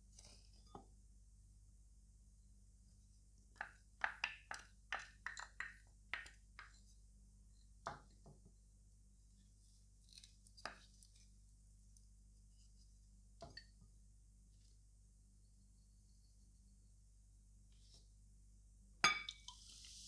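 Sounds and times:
wooden spoon tapping glass bowl: 0:03.6 - 0:06.8, 0:19.0 - 0:19.6.

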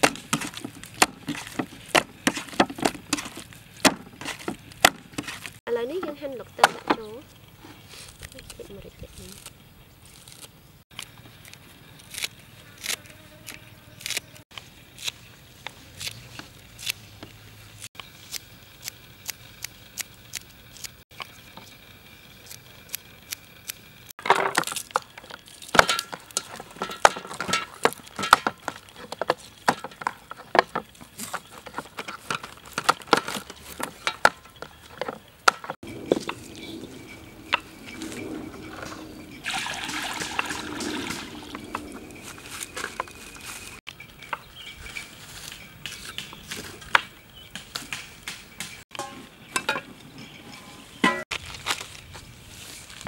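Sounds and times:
knives chopping vegetables on wood: 0:00.0 - 0:05.6, 0:45.8 - 0:49.1.

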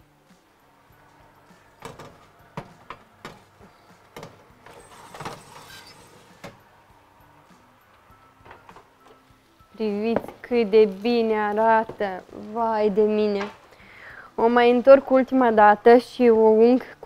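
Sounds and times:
tray scraping rattle: 0:04.2 - 0:06.6
metal baking tray sliding on rack: 0:04.6 - 0:06.6.

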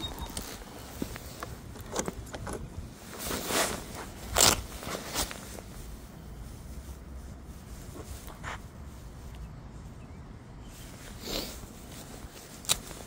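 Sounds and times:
wind rumble on microphone: 0:00.0 - 0:04.7
camera rustling against fabric: 0:00.0 - 0:09.4.

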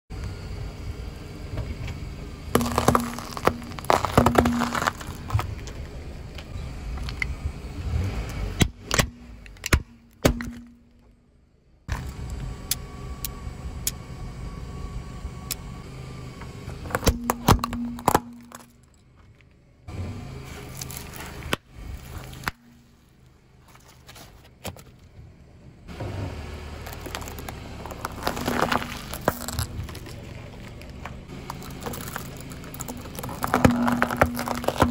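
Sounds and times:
car engine running slowly: 0:00.1 - 0:34.9
car tyre crushing objects: 0:01.6 - 0:11.2, 0:16.6 - 0:34.9
hard plastic cracking: 0:02.6 - 0:05.8, 0:26.9 - 0:34.9.

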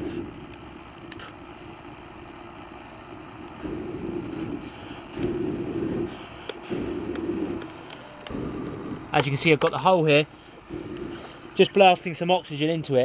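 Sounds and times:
breath blowing into fire base: 0:00.0 - 0:00.5, 0:03.5 - 0:09.2, 0:10.3 - 0:11.6
burning sticks crackling: 0:00.0 - 0:13.0
fire roaring up chimney: 0:00.0 - 0:13.0.

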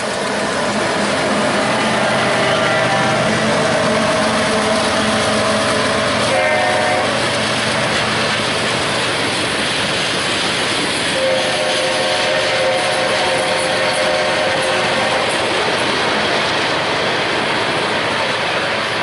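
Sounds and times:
train cars rolling on rails: 0:00.0 - 0:19.0
train horn: 0:01.6 - 0:07.3, 0:11.2 - 0:15.4.

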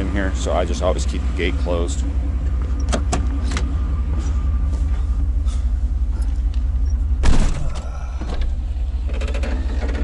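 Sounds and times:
truck engine idling: 0:00.0 - 0:10.0
truck door shutting: 0:07.2 - 0:08.6.

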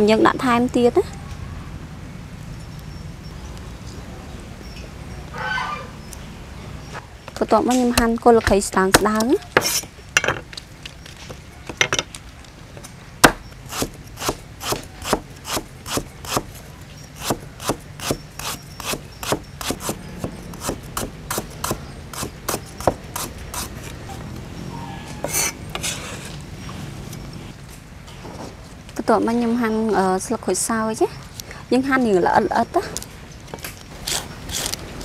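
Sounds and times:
cleaver chopping on board: 0:18.9 - 0:23.7.

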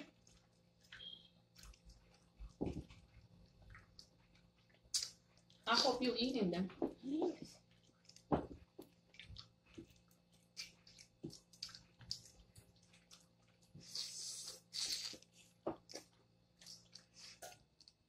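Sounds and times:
wet slurp: 0:13.8 - 0:17.6.

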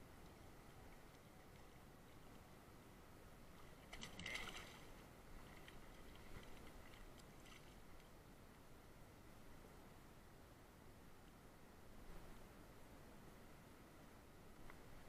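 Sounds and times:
faint ticks: 0:14.5 - 0:14.9.

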